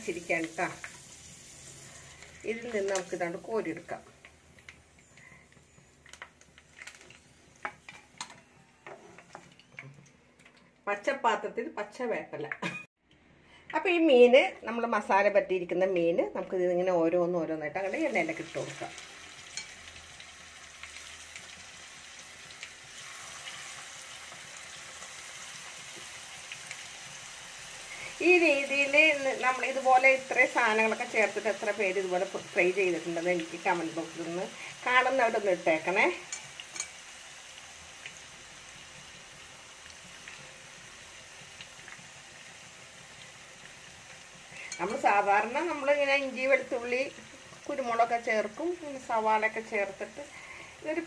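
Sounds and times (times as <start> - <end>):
fish sizzling in hot oil: 0.0 - 9.8, 17.8 - 51.0
oil crackling: 4.1 - 8.3.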